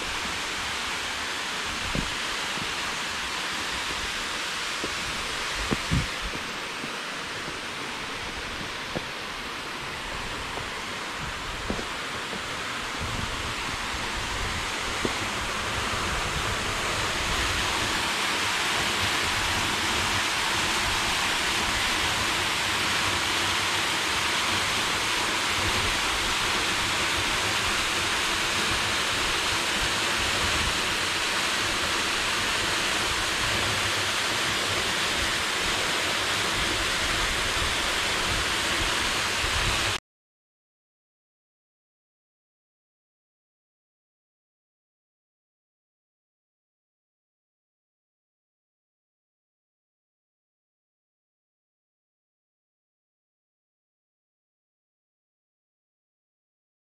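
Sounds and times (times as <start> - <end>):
waterfall rushing: 0.0 - 40.0.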